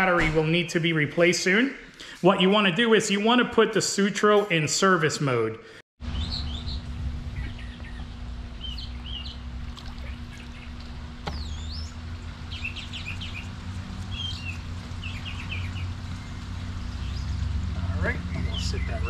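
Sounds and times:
small birds chirping: 0:06.0 - 0:19.0
steady low hum: 0:06.0 - 0:19.0.

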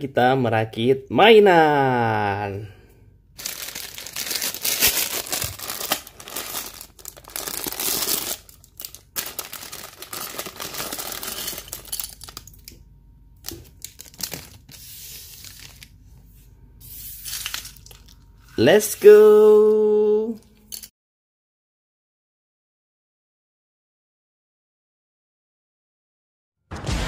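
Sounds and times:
plastic bag crinkling and tearing: 0:03.4 - 0:12.8, 0:13.4 - 0:16.0.

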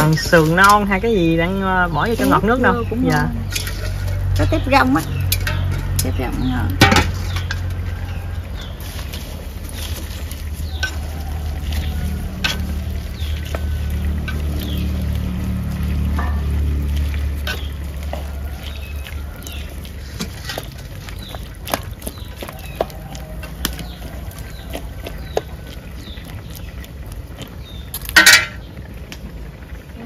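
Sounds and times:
low rumble: 0:00.5 - 0:22.4
utensil clinking against pot: 0:03.1 - 0:14.9, 0:28.0 - 0:28.7.

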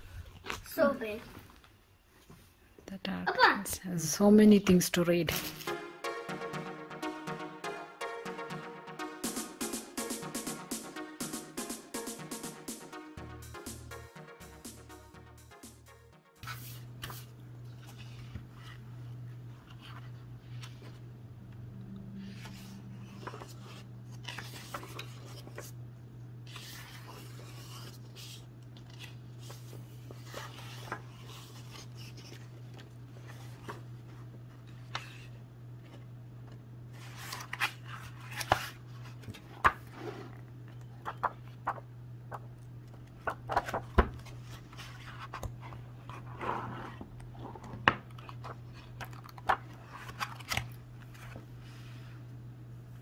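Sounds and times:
pages rustling: 0:16.4 - 0:21.0, 0:22.2 - 0:25.8, 0:26.4 - 0:52.0.

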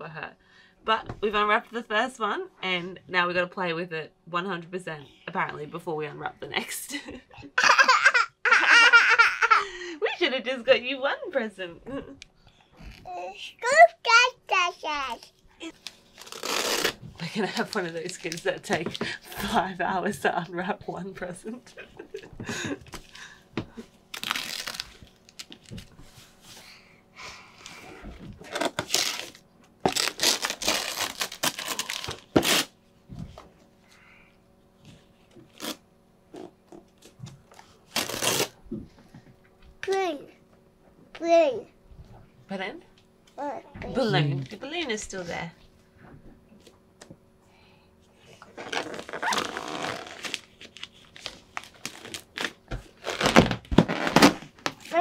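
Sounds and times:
wrapping paper crinkling and tearing: 0:15.6 - 0:18.4, 0:24.1 - 0:25.9, 0:28.5 - 0:32.7, 0:37.8 - 0:38.6, 0:48.6 - 0:54.9.

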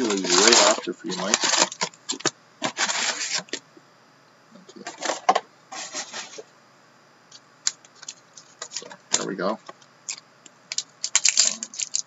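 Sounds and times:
card packs rustling and sliding: 0:00.0 - 0:03.6.

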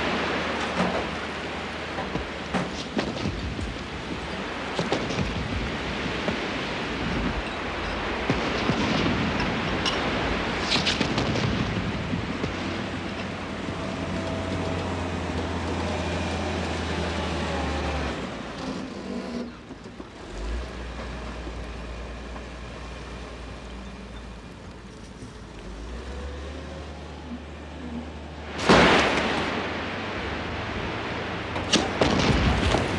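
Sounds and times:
gravel and dirt pouring: 0:00.0 - 0:18.6, 0:27.9 - 0:32.9
heavy machinery droning: 0:11.8 - 0:32.9.

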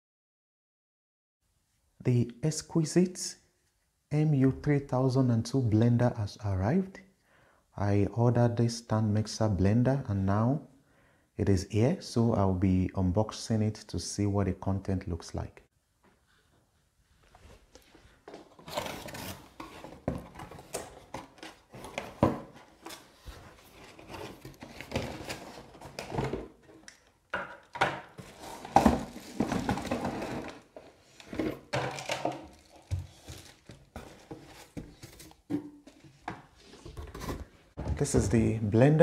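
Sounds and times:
plastic packaging rustling: 0:17.6 - 0:26.9, 0:28.1 - 0:37.6
cardboard box being opened: 0:18.3 - 0:26.6.

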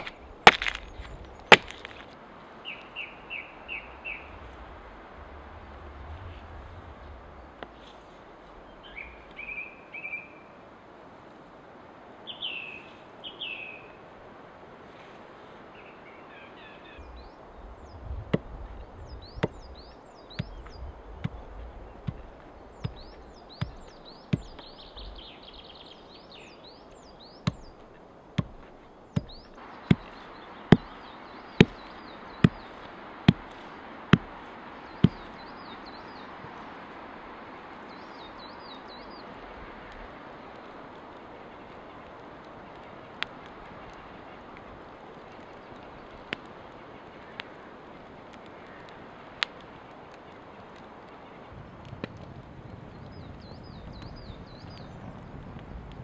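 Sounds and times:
axe chopping meat on log: 0:00.0 - 0:00.8, 0:01.5 - 0:02.0, 0:22.0 - 0:24.6, 0:27.5 - 0:27.7, 0:28.4 - 0:28.6, 0:29.2 - 0:30.1, 0:30.7 - 0:31.0, 0:33.3 - 0:33.6, 0:35.0 - 0:35.2
small birds chirping: 0:00.0 - 0:10.6, 0:12.2 - 0:14.0, 0:15.0 - 0:56.0.

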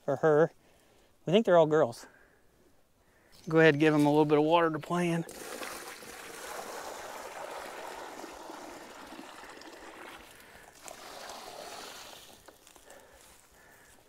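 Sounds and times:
water pouring and splashing: 0:03.8 - 0:13.1.

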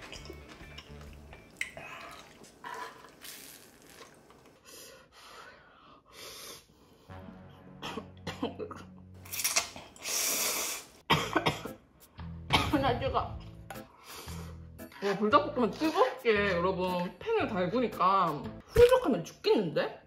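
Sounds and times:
light background music: 0:00.0 - 0:02.4, 0:11.1 - 0:20.0
noodles being slurped: 0:01.6 - 0:04.6.

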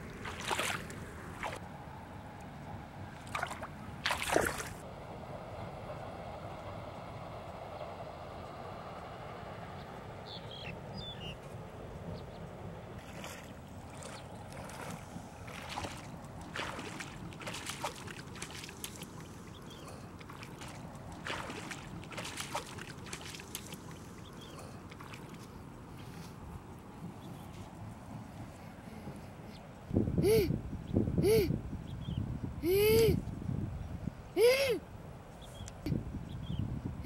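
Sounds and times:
lake water sloshing: 0:00.0 - 0:01.6, 0:03.2 - 0:04.8, 0:13.0 - 0:26.2
splashing steps wading: 0:00.0 - 0:01.6, 0:03.2 - 0:04.8, 0:13.0 - 0:25.6.

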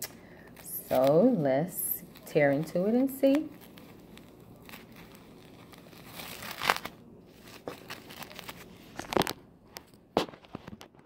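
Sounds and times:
plastic packaging crinkling and ripping: 0:00.0 - 0:11.0.

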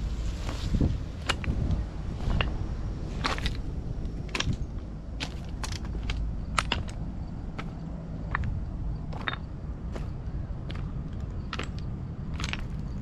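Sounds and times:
steady low rumble: 0:00.0 - 0:13.0
clacks of hard objects: 0:04.3 - 0:07.0, 0:07.6 - 0:10.1, 0:10.7 - 0:13.0.

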